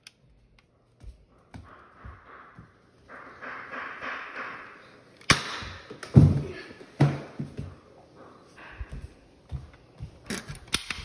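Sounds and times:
footsteps on stairs: 0.8s - 4.7s, 5.6s - 10.7s.

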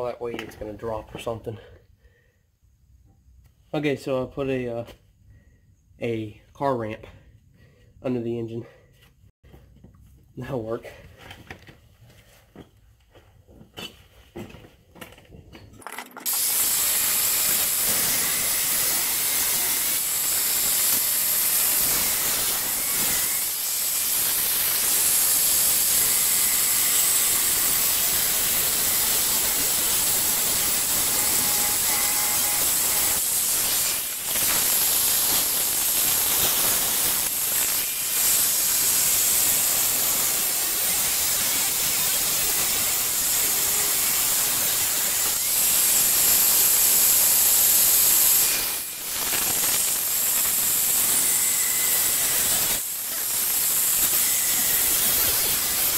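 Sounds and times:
angle grinder cutting steel: 16.0s - 55.9s.

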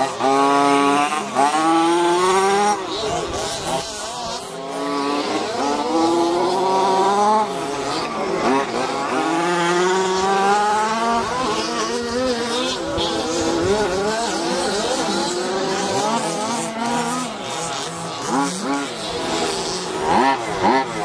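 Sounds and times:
nitro engine revving: 0.0s - 21.0s.

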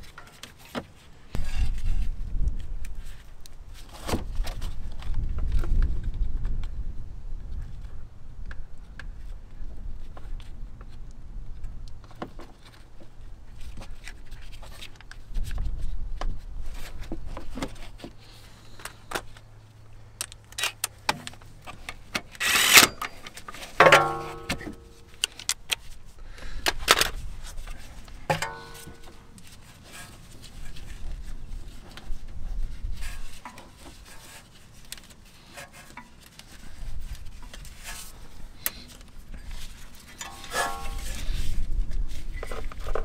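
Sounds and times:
metal clanks ringing: 23.8s - 25.0s, 28.3s - 29.2s, 40.2s - 41.2s
tools clicking and tapping: 28.3s - 29.1s.

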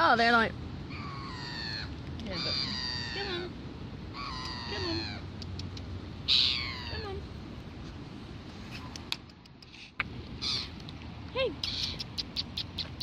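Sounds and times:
gulls calling: 0.9s - 5.4s, 6.2s - 7.2s, 10.4s - 10.8s.

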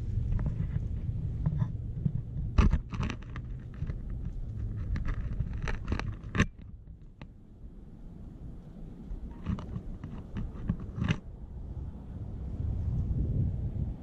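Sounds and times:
wind rumbling on microphone: 0.0s - 14.0s
sharp clicks and scrapes: 0.2s - 7.3s, 9.3s - 11.2s.

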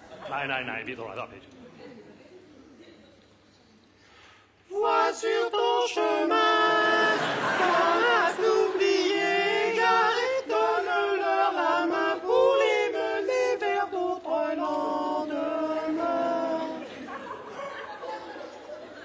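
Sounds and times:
men singing in close harmony: 4.7s - 17.2s.

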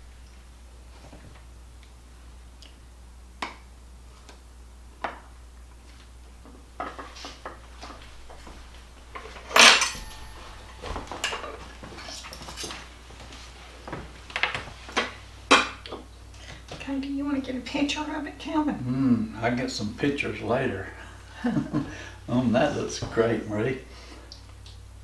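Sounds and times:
metal utensils clinking on dishes: 9.2s - 12.9s
utensil clatter with ring: 9.2s - 12.9s.

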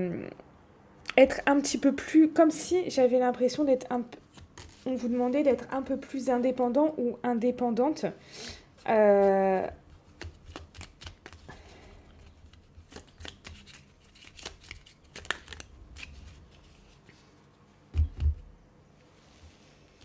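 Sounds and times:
cards shuffling: 4.3s - 5.1s, 9.9s - 17.4s.

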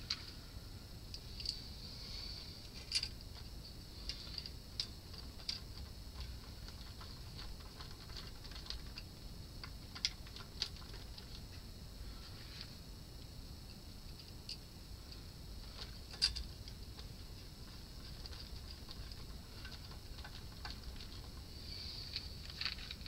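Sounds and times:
faint high hiss: 21.2s - 23.0s.

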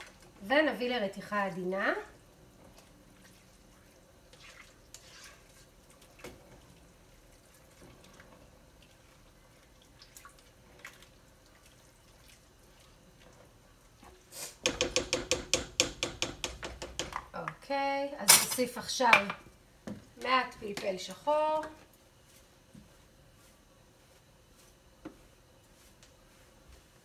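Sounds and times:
liquid sloshing: 2.7s - 13.5s.

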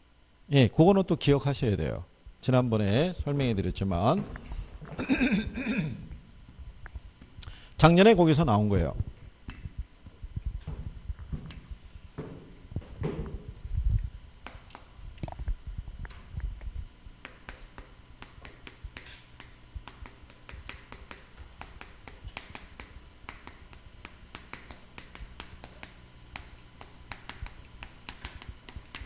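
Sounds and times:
dull thumps: 3.7s - 7.4s, 9.0s - 16.2s
chalk tapping on blackboard: 17.2s - 29.0s.

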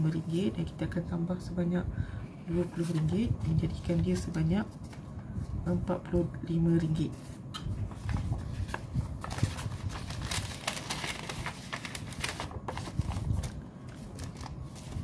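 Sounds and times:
paper envelopes rustling: 2.6s - 5.0s, 7.2s - 15.0s.

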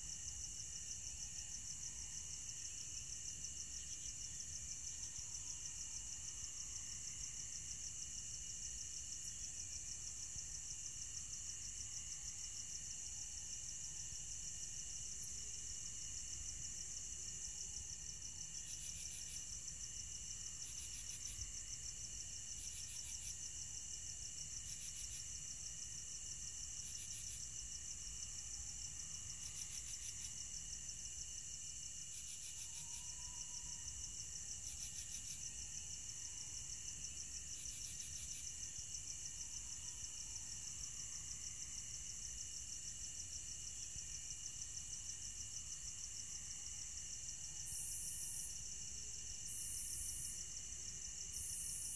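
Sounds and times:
crickets trilling: 0.1s - 51.9s.

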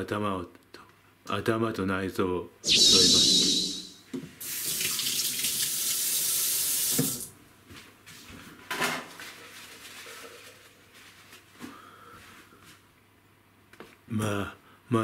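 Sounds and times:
tap running into sink: 6.8s - 7.3s.

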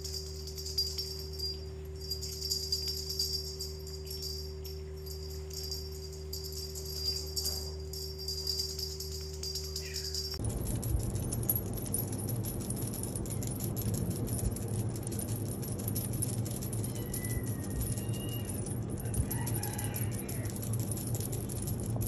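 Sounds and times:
cat toy rattling and clicking: 0.0s - 22.0s.

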